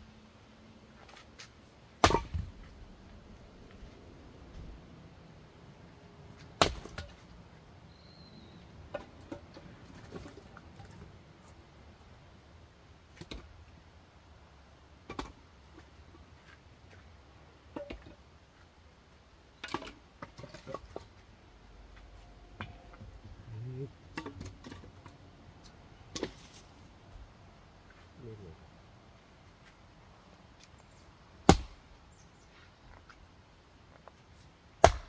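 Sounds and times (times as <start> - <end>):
axe chopping firewood: 2.0 - 2.7, 6.4 - 7.2, 26.1 - 26.6, 31.4 - 31.9, 34.8 - 35.0.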